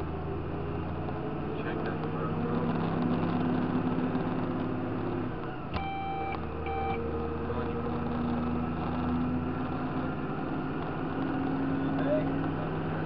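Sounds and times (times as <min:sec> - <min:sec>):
electronic beeps: 0:05.8 - 0:07.0.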